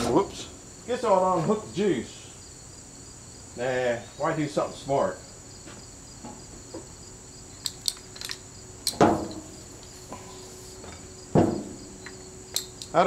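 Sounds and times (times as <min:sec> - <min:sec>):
insects trilling: 0:00.0 - 0:13.0
light clicks: 0:07.6 - 0:10.0, 0:12.0 - 0:13.0
heavy clunks: 0:07.6 - 0:13.0.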